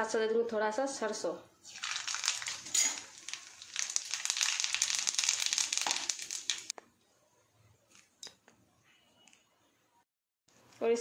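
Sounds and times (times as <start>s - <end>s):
mustard seeds popping in hot oil: 1.7s - 6.8s.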